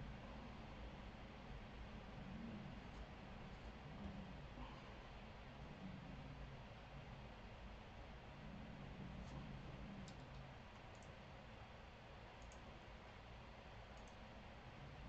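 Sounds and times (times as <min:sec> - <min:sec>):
low hum: 0:00.0 - 0:15.0
small sharp clicks: 0:12.4 - 0:12.7, 0:13.9 - 0:14.2.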